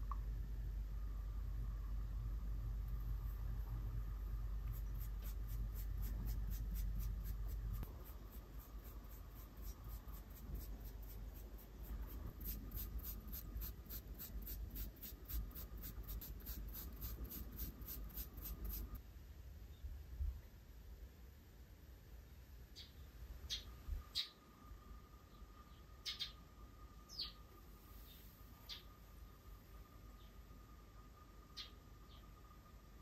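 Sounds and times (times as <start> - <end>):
brush stroking glue onto fabric: 4.6 - 19.0.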